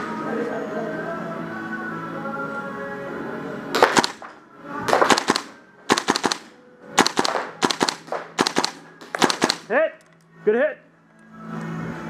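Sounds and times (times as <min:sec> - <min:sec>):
airsoft rifle firing: 0:03.8 - 0:04.3, 0:04.9 - 0:09.8.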